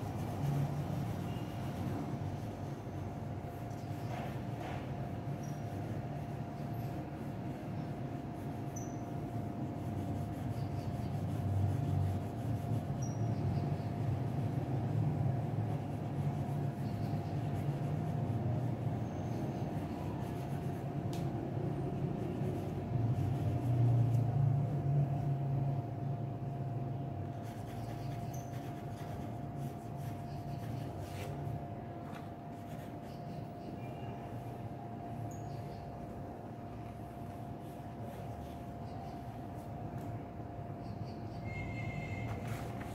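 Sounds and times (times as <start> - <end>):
pencil scratching on paper: 0.0 - 2.6, 3.4 - 20.9, 22.2 - 24.3, 27.3 - 31.6, 32.2 - 33.5, 37.6 - 39.7
constant hum: 0.0 - 42.9.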